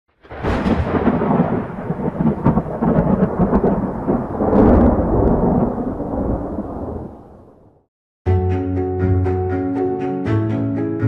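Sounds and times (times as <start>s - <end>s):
deep thunder-like rumble with crackles: 0.2s - 7.9s.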